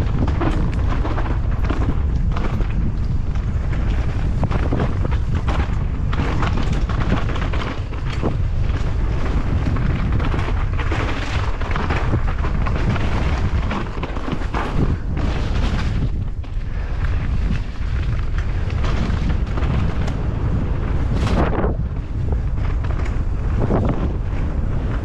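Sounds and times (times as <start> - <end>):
bike tyres on dirt: 0.0 - 25.0
mountain bike rattling knocks: 0.0 - 25.0
wind buffeting microphone: 0.0 - 25.0.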